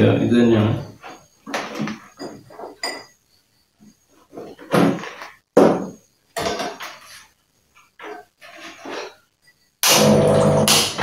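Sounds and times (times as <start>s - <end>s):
objects knocking on wooden table: 4.7s - 6.8s.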